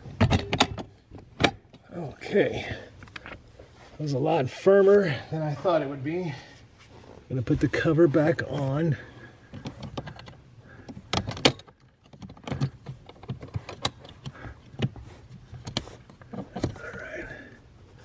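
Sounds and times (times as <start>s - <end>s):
plastic and metal parts clattering: 0.0s - 1.9s, 8.9s - 17.2s.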